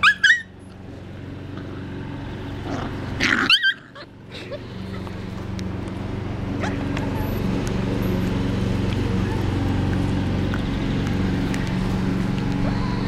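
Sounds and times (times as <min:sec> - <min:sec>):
puppy yelping: 0:00.0 - 0:00.6, 0:03.2 - 0:04.1, 0:06.6 - 0:07.2.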